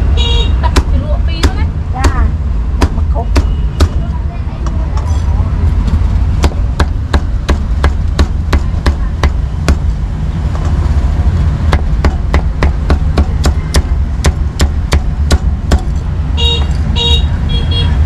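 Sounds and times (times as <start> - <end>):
cleaver chopping on wooden block: 2.8 - 4.0, 6.4 - 9.9, 11.7 - 16.0.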